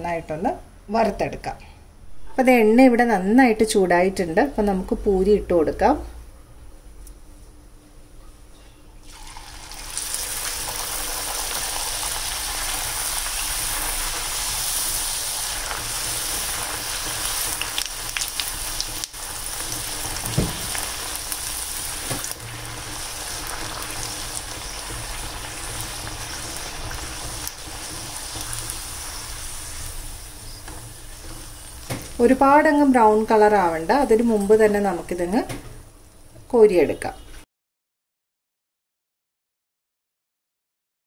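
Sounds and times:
dough deep-frying in hot oil: 9.0s - 35.5s.

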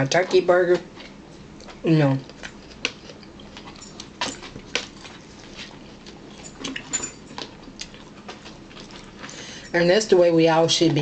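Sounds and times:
people chewing with mouth smacks: 0.0s - 9.9s.

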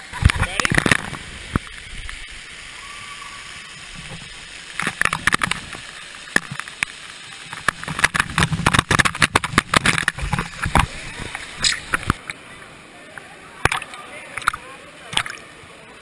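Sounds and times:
water splashing on camera housing: 0.0s - 2.4s, 3.8s - 12.4s, 13.2s - 15.5s
water pouring onto camera: 0.1s - 12.4s.

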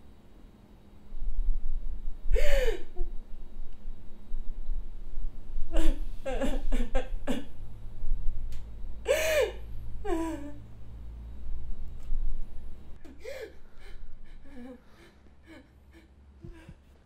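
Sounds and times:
low steady hum: 0.0s - 17.0s
person sobbing: 2.3s - 3.2s, 5.7s - 7.5s, 9.1s - 10.6s, 13.0s - 16.8s.

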